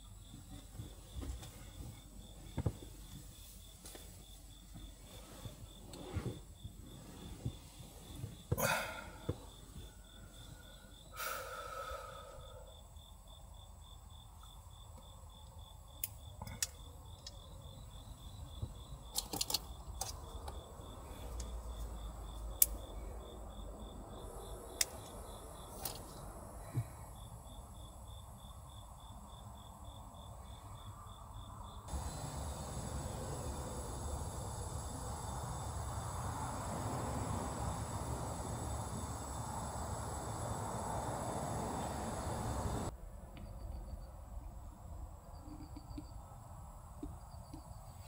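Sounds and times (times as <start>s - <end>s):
insect chirping: 0.0s - 48.0s
steady hiss: 31.8s - 42.9s.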